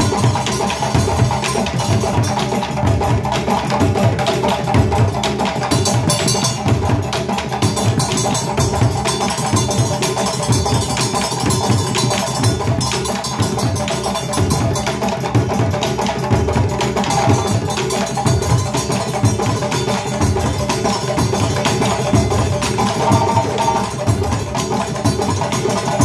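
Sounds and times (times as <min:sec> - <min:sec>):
hand drums playing: 0:00.0 - 0:26.0
bass drum beaten with sticks: 0:21.4 - 0:24.4.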